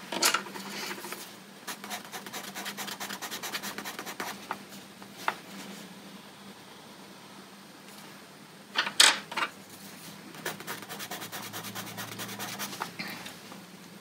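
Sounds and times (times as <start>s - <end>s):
pencil scribbling on paper: 0.6s - 4.4s, 10.4s - 12.9s.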